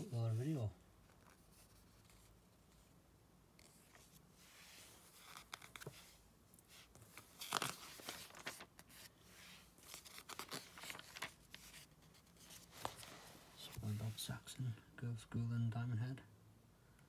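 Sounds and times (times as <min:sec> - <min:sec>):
magazine pages turning: 0:03.6 - 0:14.2.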